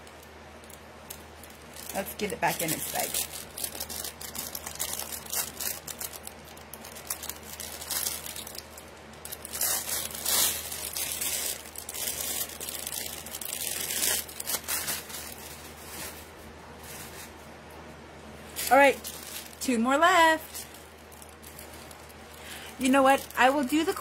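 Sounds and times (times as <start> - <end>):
plastic bag crinkling: 0.0 - 17.6, 18.4 - 24.0.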